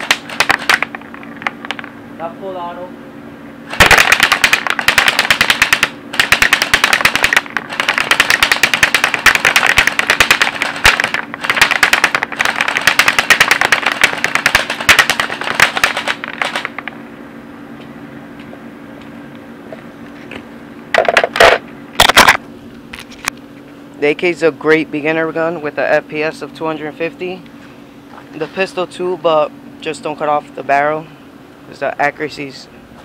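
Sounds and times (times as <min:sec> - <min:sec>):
airsoft gun firing rapid bursts: 0:00.0 - 0:00.9, 0:03.7 - 0:16.8.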